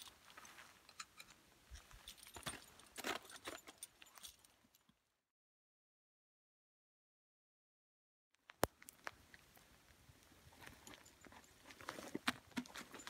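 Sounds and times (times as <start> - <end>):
climbing hardware clinking: 0.0 - 4.9.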